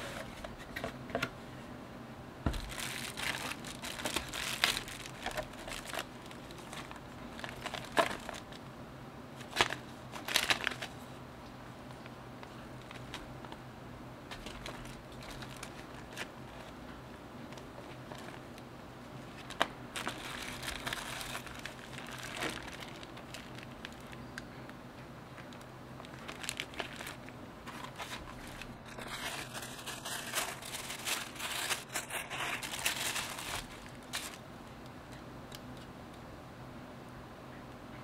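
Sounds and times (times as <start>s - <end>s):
bubble wrap and paper crinkling: 2.4s - 8.6s, 9.4s - 11.1s, 11.9s - 13.6s, 14.3s - 24.7s, 25.3s - 34.4s.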